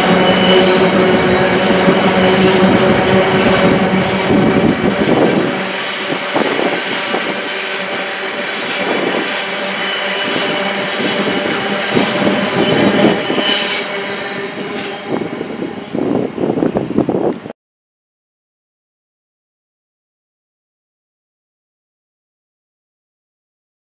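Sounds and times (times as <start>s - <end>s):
train wheels clacking on rail joints: 0.0s - 16.4s
wheel squeal: 0.0s - 17.3s
deep train rumble: 0.0s - 17.5s.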